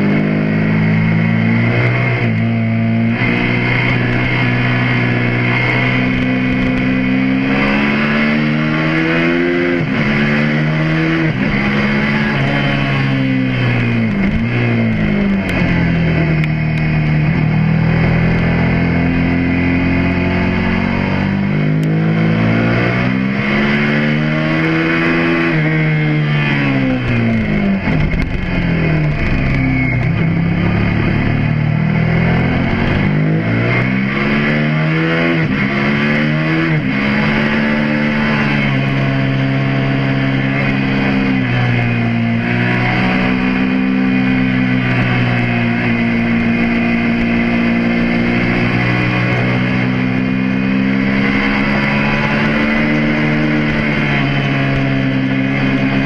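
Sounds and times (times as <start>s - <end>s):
motorcycle engine revving: 0.0s - 56.0s
wind noise: 26.9s - 31.4s.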